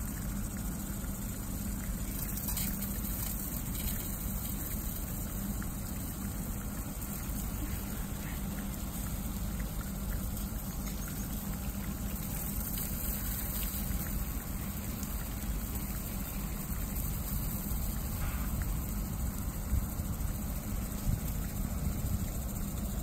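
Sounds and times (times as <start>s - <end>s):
sprinkler water spraying: 0.0s - 23.0s.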